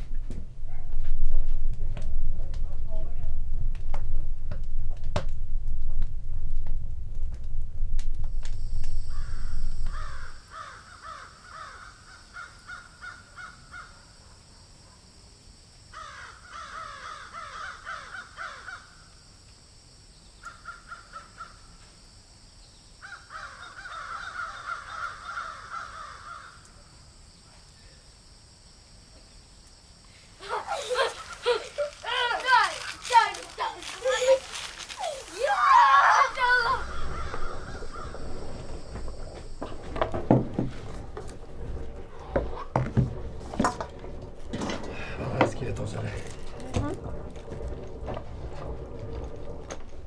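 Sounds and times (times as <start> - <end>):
low rumble: 0.0 - 10.4, 36.2 - 50.0
steady high hiss: 0.0 - 50.0.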